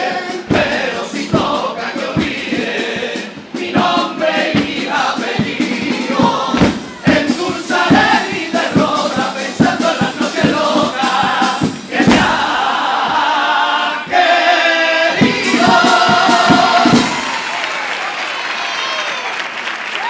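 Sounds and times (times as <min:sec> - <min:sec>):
male choir singing in harmony: 0:00.0 - 0:17.4
drum strokes: 0:00.0 - 0:17.6
crowd applauding: 0:16.3 - 0:20.0.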